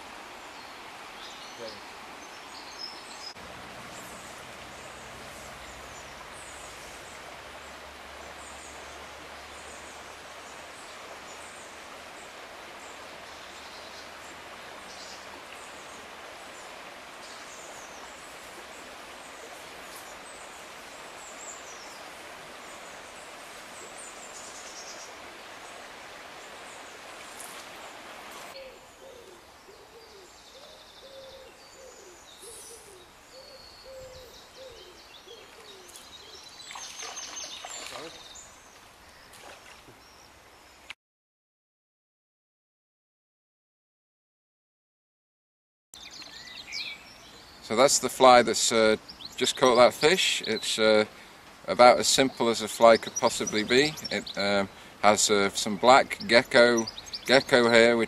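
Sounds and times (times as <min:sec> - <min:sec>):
stream water flowing: 0:00.0 - 0:31.0, 0:34.4 - 0:40.8, 0:46.0 - 0:58.0
songbirds chirping: 0:00.0 - 0:41.0, 0:46.0 - 0:58.0
low hooting bird calls: 0:28.5 - 0:38.6.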